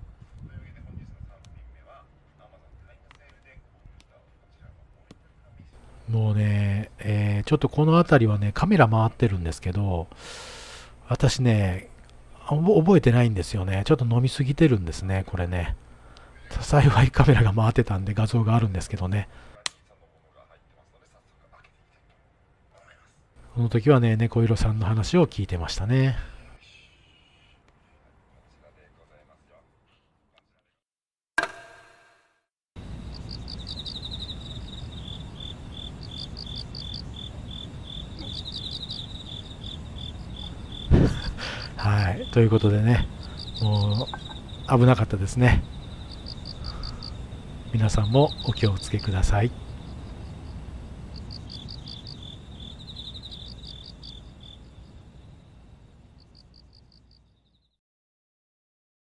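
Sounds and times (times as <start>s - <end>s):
low background hiss: 0.5s - 30.0s, 32.8s - 57.2s
crickets chirping: 5.8s - 19.6s, 32.8s - 57.8s
sharp ringing hit: 31.4s - 32.4s.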